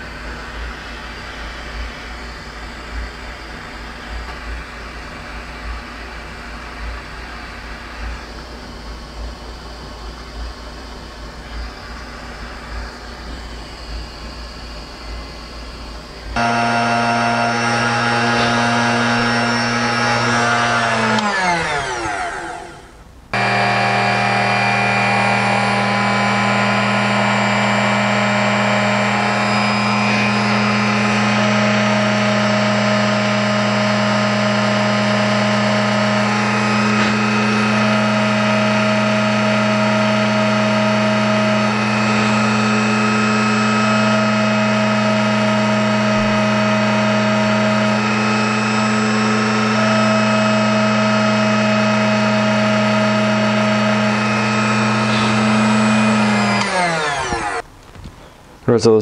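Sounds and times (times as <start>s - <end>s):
drill press motor running: 0.0s - 57.7s.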